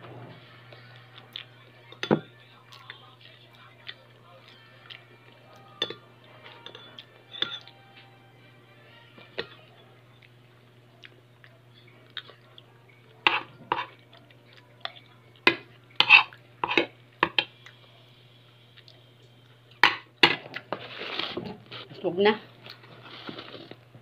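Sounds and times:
metal spoon scraping a plate: 16.0s - 16.9s.

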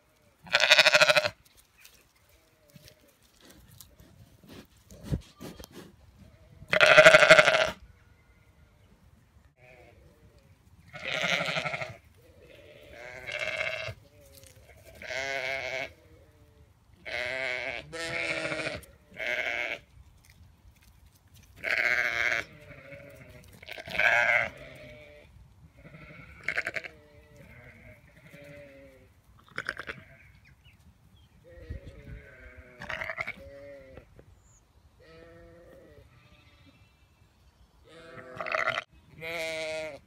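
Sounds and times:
sheep bleating: 0.4s - 1.4s, 6.7s - 7.8s, 10.9s - 16.4s, 17.0s - 19.8s, 21.6s - 30.4s, 31.5s - 34.1s, 37.9s - 40.0s.

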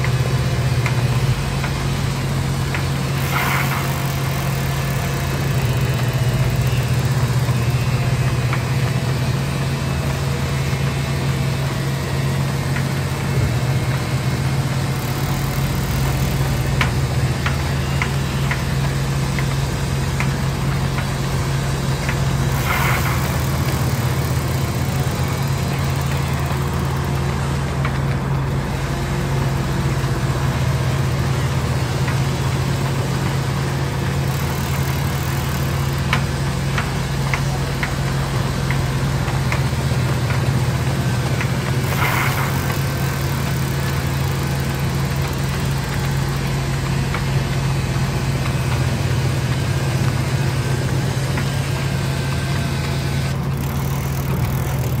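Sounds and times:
band saw running: 0.0s - 55.0s
brief scrape: 3.2s - 4.5s, 22.5s - 24.3s, 41.8s - 43.0s.

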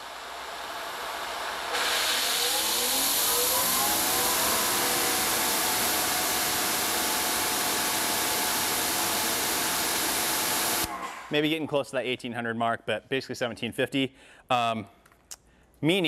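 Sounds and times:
pressure washer motor whine: 0.0s - 11.2s
pressure washer spray hiss: 1.7s - 10.9s.

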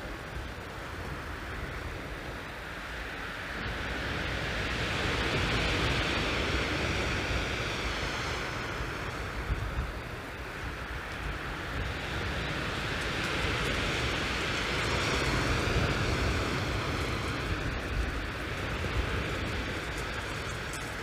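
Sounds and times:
wind rumbling on microphone: 0.0s - 21.0s
waves on shingle beach: 11.8s - 21.0s.

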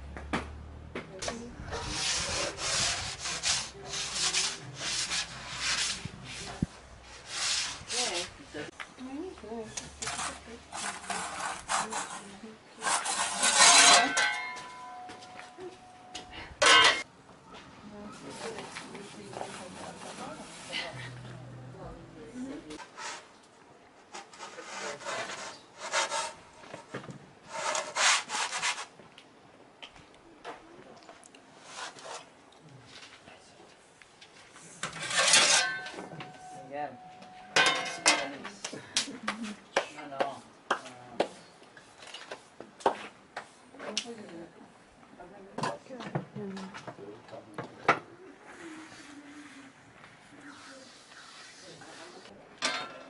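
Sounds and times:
metal peel scraping on marble: 1.7s - 8.2s, 9.7s - 15.7s, 16.6s - 17.1s, 27.5s - 28.9s, 34.8s - 36.6s
hand rubbing flour on metal: 1.7s - 8.3s.

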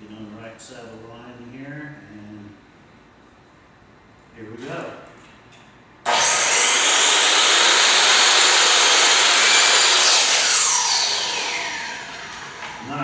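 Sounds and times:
miter saw cutting board: 6.1s - 13.0s.

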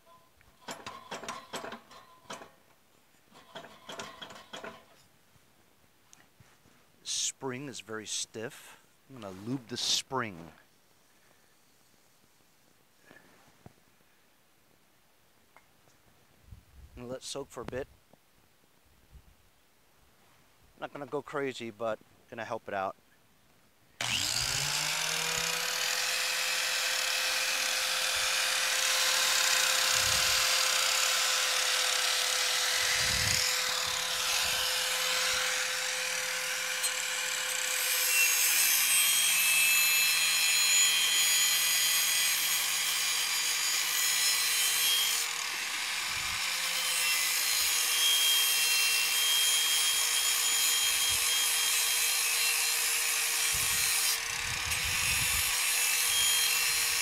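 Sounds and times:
grinder disc grinding steel: 0.6s - 2.6s, 3.3s - 5.0s, 24.0s - 57.0s
angle grinder motor whine: 24.0s - 47.9s, 53.6s - 57.0s.

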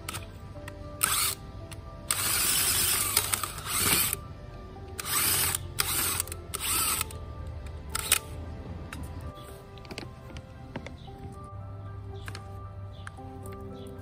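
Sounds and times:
background music: 0.0s - 14.0s
power drill boring into soil: 2.1s - 4.2s.

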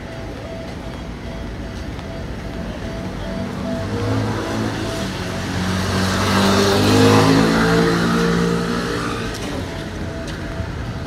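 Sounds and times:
vehicle passing and accelerating: 2.8s - 11.0s.

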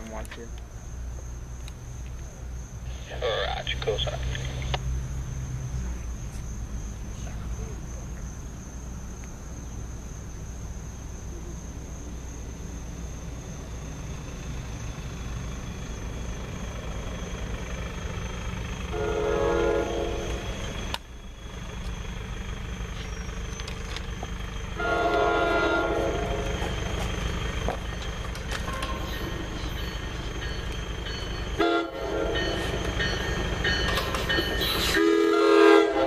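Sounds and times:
train rumble: 0.0s - 36.0s
train horn: 18.9s - 20.5s, 24.8s - 26.7s, 31.6s - 32.8s, 34.8s - 36.0s.

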